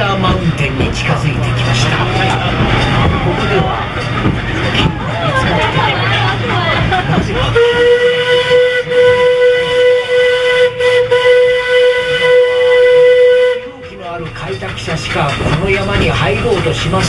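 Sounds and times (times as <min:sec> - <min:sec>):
steam locomotive whistle: 0:07.4 - 0:13.9.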